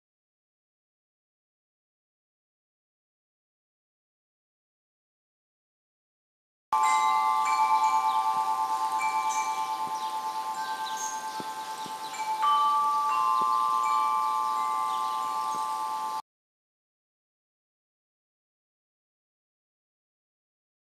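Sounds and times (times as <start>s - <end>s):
tubular wind chime ringing: 6.8s - 16.2s.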